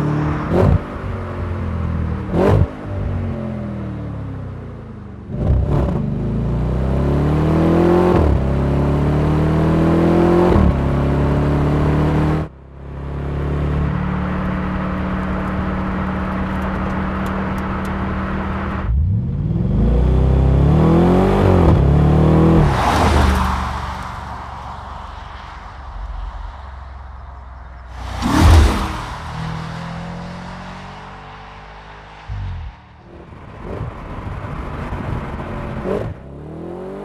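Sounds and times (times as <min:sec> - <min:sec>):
car engine accelerating: 0:27.8 - 0:37.0.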